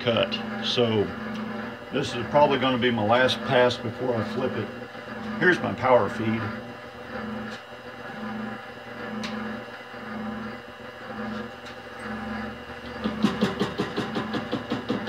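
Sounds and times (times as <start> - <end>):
lathe-mill humming: 0.0 - 15.0
fast rhythmic knocking: 13.0 - 15.0.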